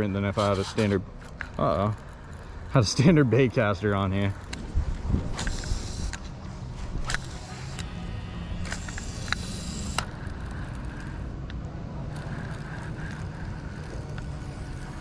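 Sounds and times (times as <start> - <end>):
fishing reel whirring: 4.4 - 15.0
wind rumble on microphone: 4.5 - 6.2
fishing reel clicking: 5.3 - 6.3, 7.0 - 15.0.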